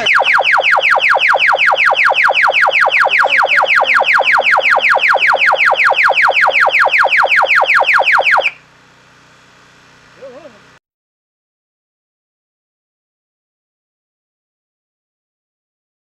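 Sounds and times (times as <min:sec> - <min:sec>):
loud high falling siren sweeps: 0:00.0 - 0:08.6.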